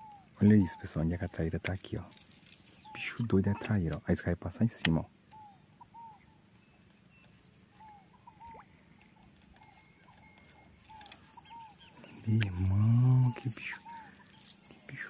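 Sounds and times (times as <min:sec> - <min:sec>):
soft chirps: 0:00.0 - 0:15.0
steady high-pitched hum: 0:00.0 - 0:15.0.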